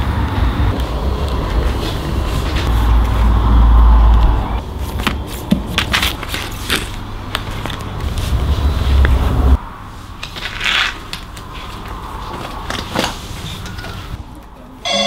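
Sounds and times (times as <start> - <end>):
low rumble with crackling: 0.0 - 4.8, 6.8 - 9.6.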